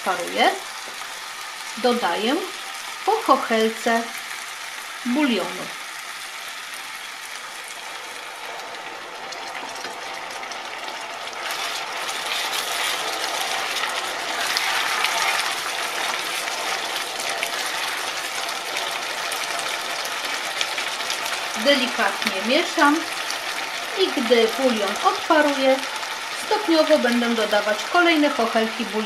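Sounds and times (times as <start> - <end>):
rice sizzling in oil: 0.0 - 29.0
spatula stirring in pan: 11.2 - 21.6.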